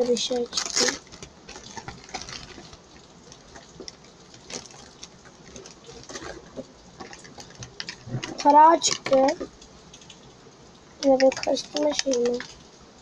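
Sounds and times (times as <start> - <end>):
plastic packaging crinkling: 0.0 - 10.2, 11.0 - 12.7
plastic toys clicking and tapping: 3.4 - 10.2, 11.0 - 12.6.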